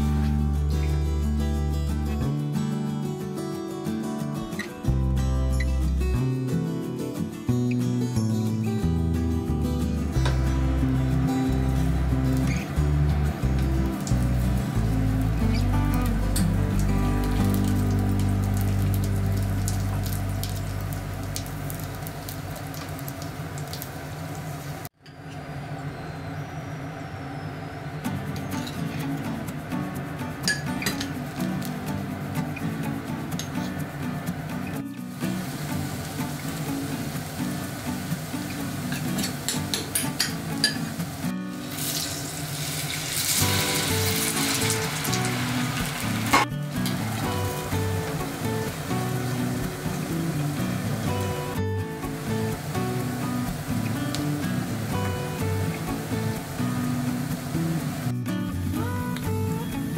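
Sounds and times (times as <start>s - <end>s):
light background music: 0.0s - 21.8s, 28.1s - 59.9s
dumplings sizzling in oil: 35.0s - 58.1s.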